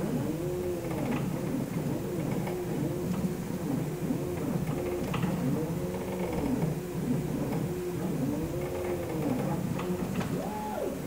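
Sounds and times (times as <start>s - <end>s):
motors whining in rising tones: 5.7s - 11.0s.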